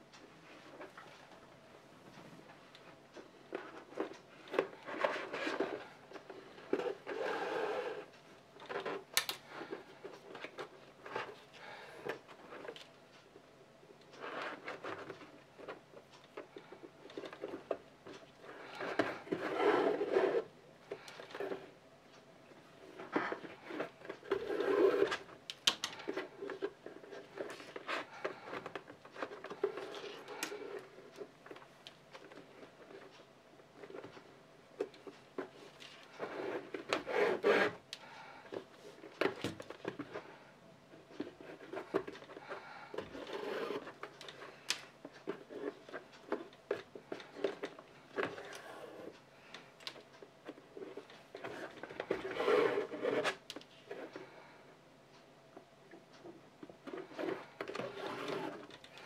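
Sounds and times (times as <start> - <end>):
rubbing and scraping on leather: 51.4 - 53.4.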